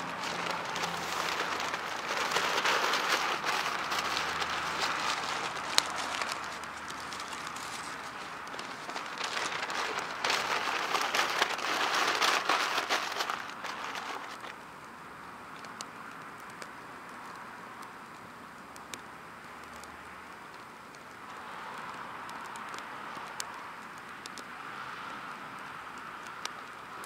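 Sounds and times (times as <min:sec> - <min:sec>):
fire crackling and popping: 0:00.0 - 0:15.0.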